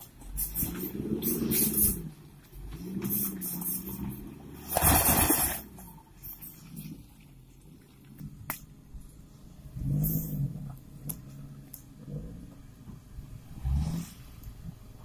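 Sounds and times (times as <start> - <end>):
vehicle engine revving: 0.0 - 5.9, 9.4 - 15.0.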